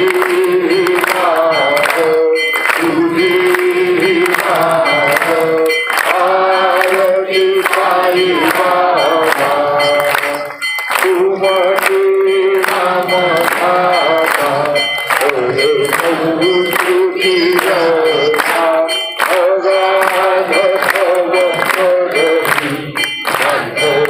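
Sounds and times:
devotional singing: 0:00.0 - 0:24.0
percussion strikes: 0:00.0 - 0:24.0.

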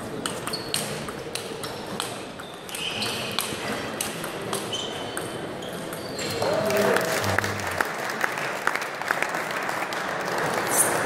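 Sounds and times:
shoes squeaking on floor: 0:00.3 - 0:01.1, 0:01.7 - 0:03.8, 0:04.6 - 0:06.6.

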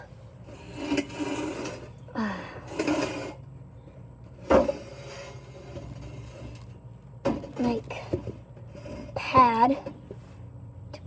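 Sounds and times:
wooden plank scraping: 0:00.4 - 0:02.0, 0:02.7 - 0:03.4, 0:04.3 - 0:09.8.

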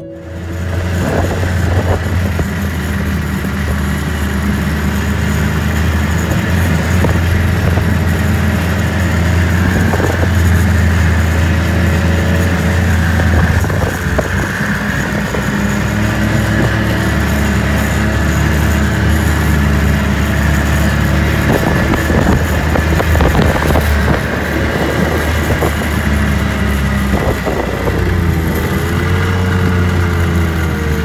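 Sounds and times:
off-road vehicle engine droning: 0:00.0 - 0:31.0.

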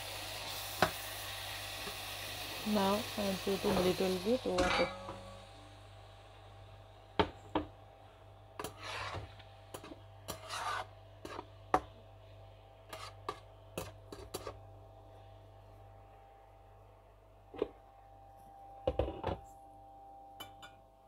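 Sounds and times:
spatula tapping and scraping pan: 0:08.6 - 0:11.9.

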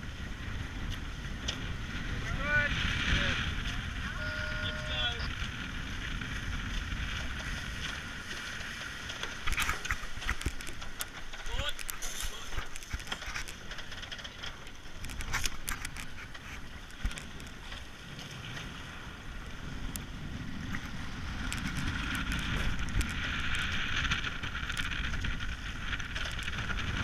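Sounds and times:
wind and water rushing: 0:00.0 - 0:27.0.

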